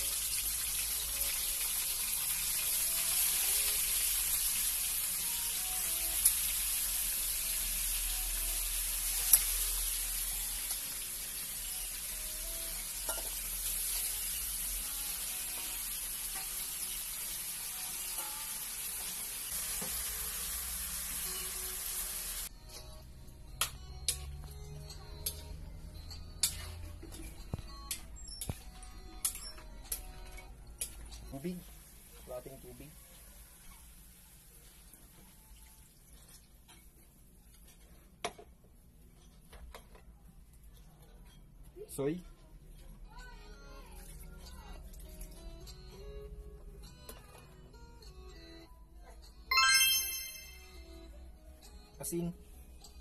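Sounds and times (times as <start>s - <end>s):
food sizzling in hot oil: 0.0s - 22.5s, 30.9s - 36.3s.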